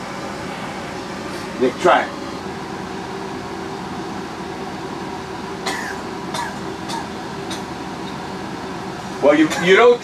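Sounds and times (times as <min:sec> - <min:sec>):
man coughing: 0:05.6 - 0:07.7, 0:09.4 - 0:09.9.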